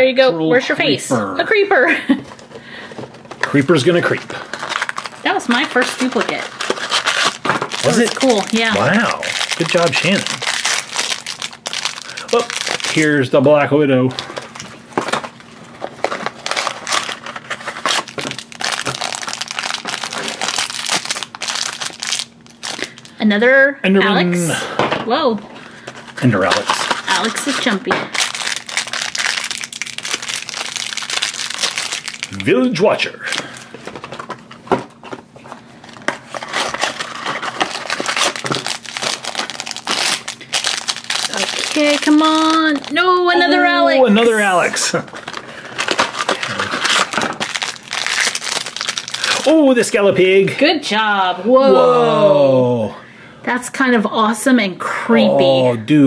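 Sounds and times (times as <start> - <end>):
foil pouch crinkling: 3.1 - 13.3, 14.1 - 23.2, 25.7 - 35.0, 35.6 - 43.3, 44.2 - 49.6.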